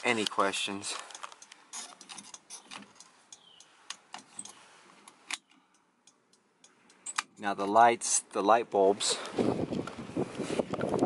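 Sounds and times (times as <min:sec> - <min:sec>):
light handling clicks and rattles: 0:00.0 - 0:07.8.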